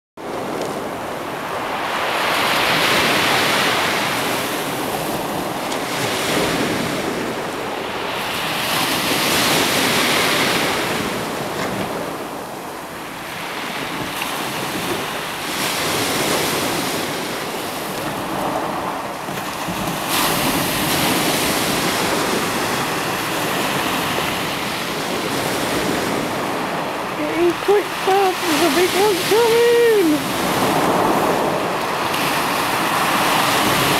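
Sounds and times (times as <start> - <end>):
waves washing over shingle: 0.2 - 33.9
wind on microphone: 13.4 - 33.9.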